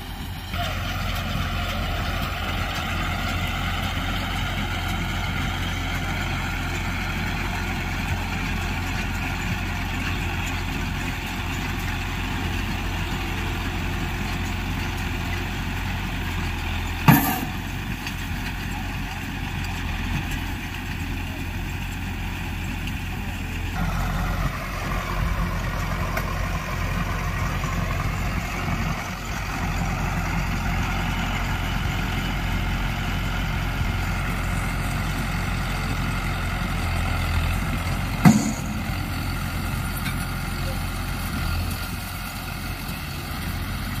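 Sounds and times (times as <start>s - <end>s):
tractor diesel engine running: 0.0s - 44.0s
sharp knock: 38.2s - 39.0s.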